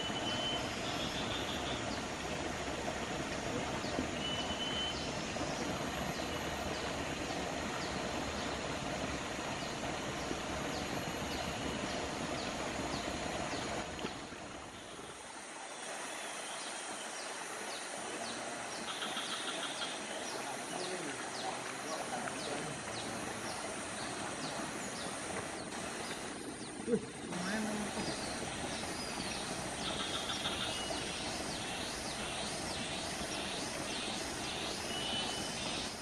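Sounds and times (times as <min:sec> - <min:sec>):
forest stream flowing: 0:00.0 - 0:36.0
faint high chirp: 0:04.2 - 0:05.0.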